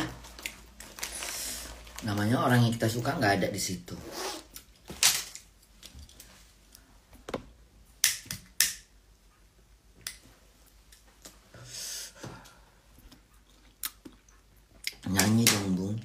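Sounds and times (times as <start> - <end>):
breathy exhale: 11.5 - 12.8.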